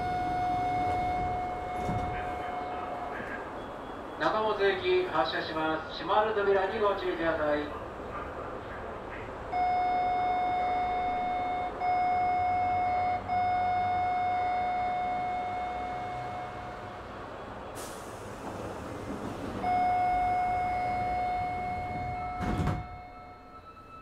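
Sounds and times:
electronic warning tone: 0.0 - 4.0, 9.6 - 16.8, 19.6 - 24.0
train hum: 0.0 - 24.0.

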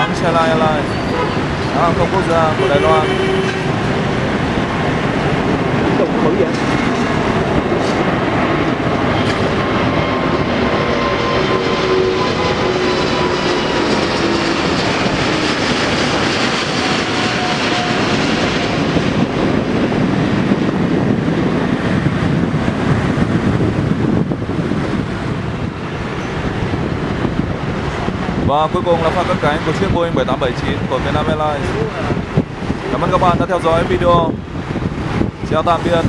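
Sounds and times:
jet airliner roaring overhead: 0.0 - 36.0.

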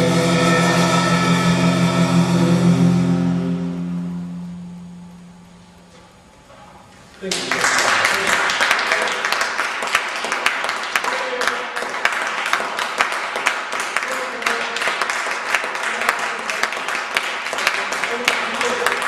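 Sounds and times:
audience applause: 7.3 - 19.0.

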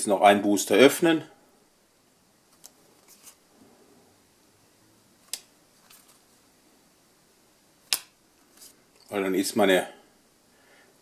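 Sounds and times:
cards snapping: 5.2 - 6.2, 7.8 - 8.8.

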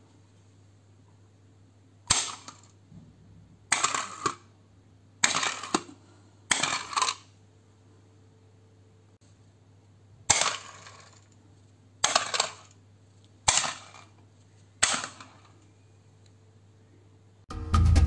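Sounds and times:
toy garage spring clacks: 2.1 - 2.8, 3.7 - 4.5, 5.2 - 7.3, 10.3 - 11.4, 12.0 - 12.8, 14.8 - 15.6.

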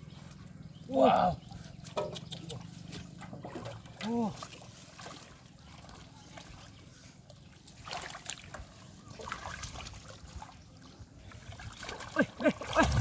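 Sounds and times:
hands splashing in muddy water: 7.4 - 13.0.

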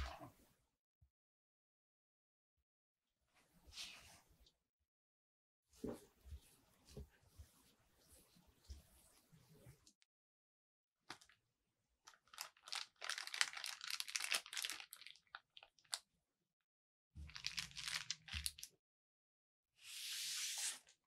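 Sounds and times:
plastic bag crinkling: 12.0 - 16.0, 17.3 - 18.7.

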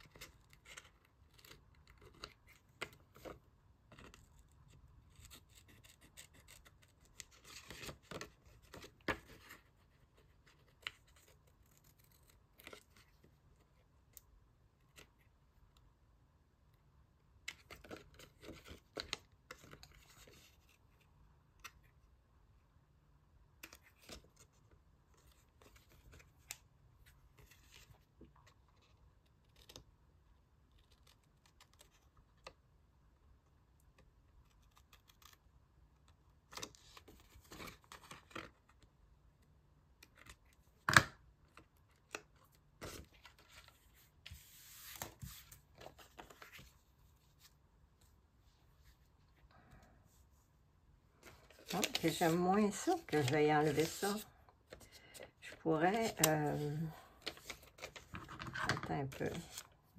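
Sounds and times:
paper handling sounds: 41.5 - 47.6, 51.2 - 59.8.

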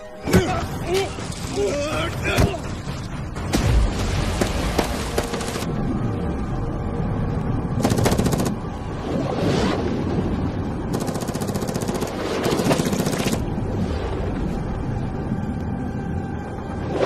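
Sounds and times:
rapid automatic gunfire: 7.8 - 8.6, 10.9 - 13.4.

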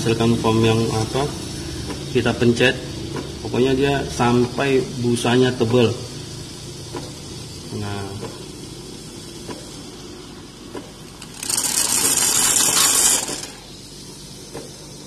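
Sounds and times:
espresso machine pump hum: 0.0 - 15.0
loud milk frother hiss: 11.1 - 14.2.

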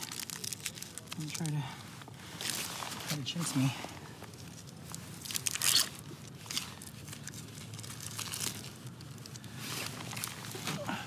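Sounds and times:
plastic wrapper tearing and crinkling: 0.0 - 1.6, 4.3 - 10.6.

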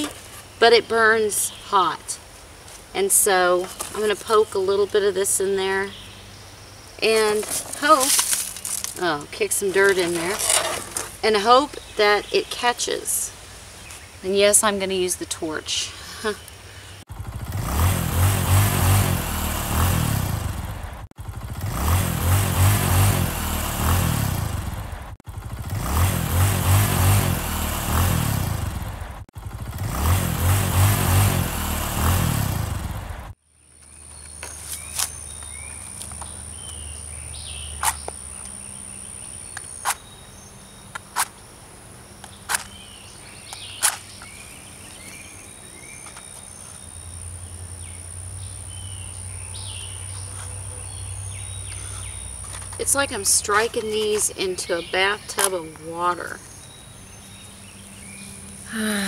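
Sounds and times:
faint bird chirps: 42.6 - 52.8.

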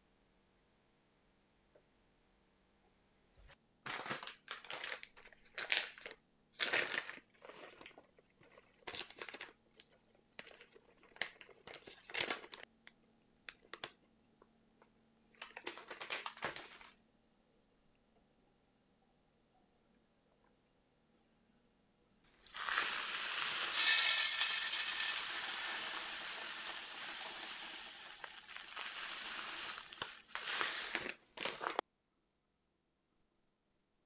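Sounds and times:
paper bag crinkling and rustling: 3.9 - 9.6, 10.4 - 12.7, 15.4 - 17.0, 22.5 - 31.8.

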